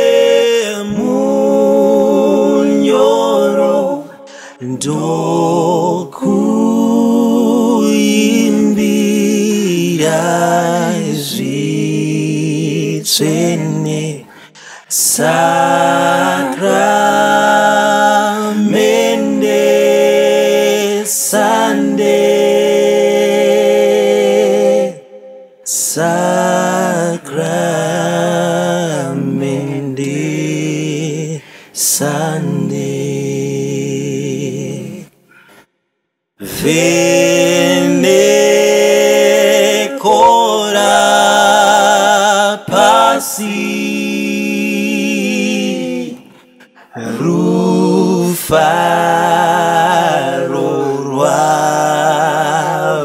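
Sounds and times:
men singing a cappella hymn: 0:00.0 - 0:35.7, 0:36.4 - 0:53.0.

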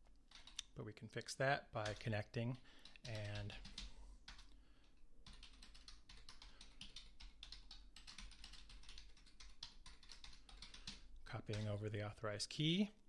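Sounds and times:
faint keyboard typing: 0:00.0 - 0:00.8, 0:01.8 - 0:12.2.

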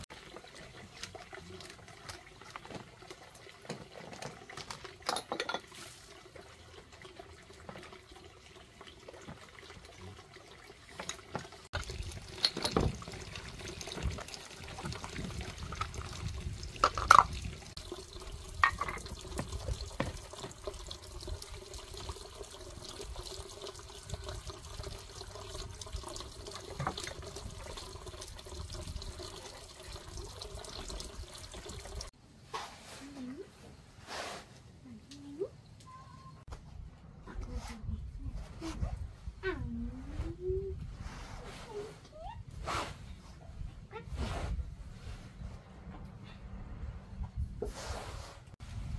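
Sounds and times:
water sloshing and trickling: 0:00.0 - 0:32.2
dishes clinking: 0:05.1 - 0:05.7.

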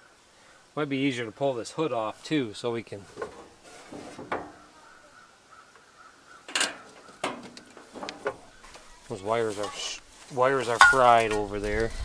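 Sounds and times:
clunks and knocks on mower: 0:04.0 - 0:04.6.

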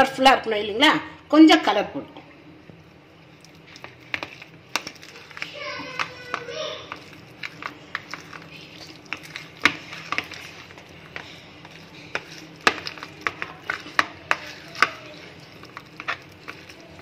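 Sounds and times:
metal spoon scraping plastic tub: 0:03.4 - 0:17.0.

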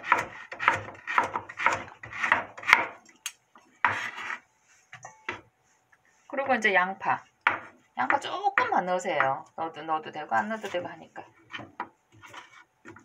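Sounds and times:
knife chopping on wooden board: 0:00.0 - 0:03.0, 0:07.4 - 0:09.4
knife scrape: 0:03.7 - 0:05.4, 0:10.4 - 0:13.0.

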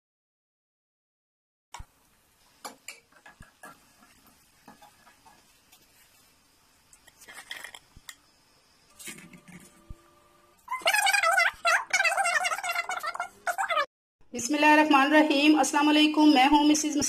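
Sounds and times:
food frying in hot oil: 0:01.8 - 0:08.9.

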